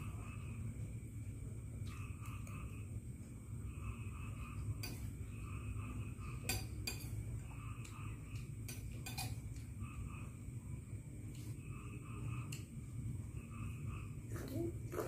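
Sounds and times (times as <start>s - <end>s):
cutlery clinking on ceramic plate: 6.5s - 7.2s, 8.7s - 9.6s.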